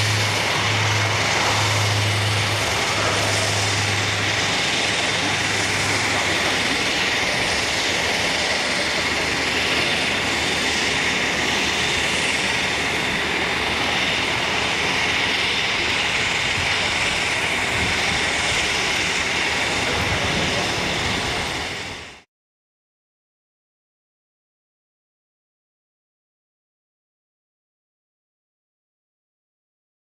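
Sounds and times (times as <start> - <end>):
high engine whine: 0.0 - 22.3
turboprop aircraft climbing: 0.0 - 22.3.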